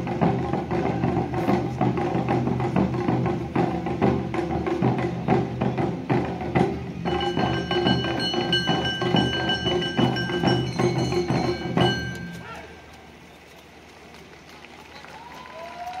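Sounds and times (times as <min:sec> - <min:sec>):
drums beating: 0:00.0 - 0:12.8
bamboo flute melody: 0:00.0 - 0:12.9
hand gong: 0:07.1 - 0:12.4.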